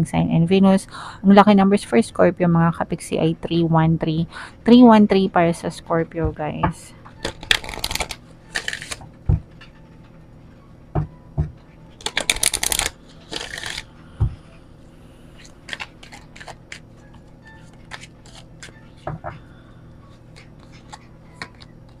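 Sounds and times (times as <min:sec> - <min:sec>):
cards rustling: 0:07.2 - 0:09.0, 0:12.0 - 0:13.9, 0:15.4 - 0:19.0, 0:20.1 - 0:22.0
riffle of cards: 0:07.4 - 0:09.0, 0:12.0 - 0:13.9.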